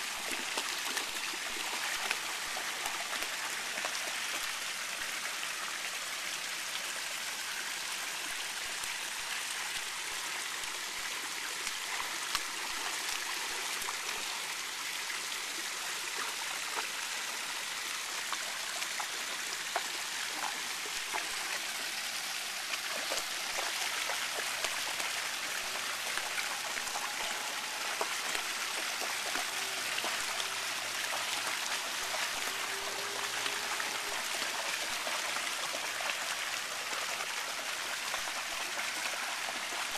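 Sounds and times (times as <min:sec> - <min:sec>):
water drips and plops: 0:00.0 - 0:05.1, 0:09.8 - 0:14.3, 0:18.2 - 0:39.9
fountain jets splashing into pool: 0:00.0 - 0:39.9
dog wading through water: 0:18.0 - 0:39.9.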